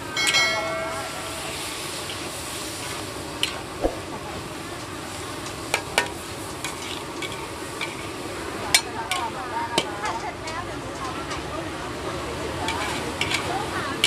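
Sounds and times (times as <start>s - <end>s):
food sizzling in a wok: 0.0s - 14.0s
metal spatula scraping a wok: 12.7s - 13.5s.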